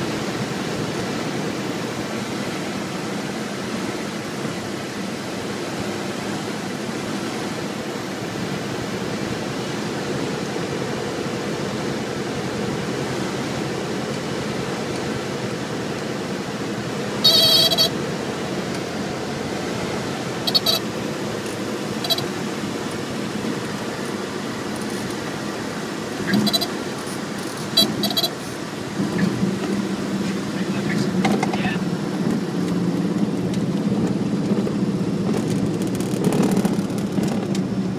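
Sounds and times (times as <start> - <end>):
propeller airplane engine droning: 0.0 - 37.9
high-pitched tyre chirp: 17.2 - 18.0, 20.4 - 20.9.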